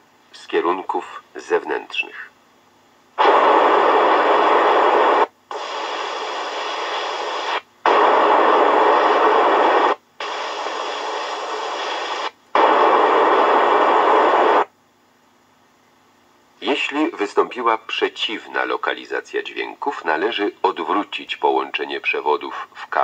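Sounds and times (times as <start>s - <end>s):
faint tape hiss: 0.0s - 23.0s
test tape noise bursts: 3.2s - 14.7s.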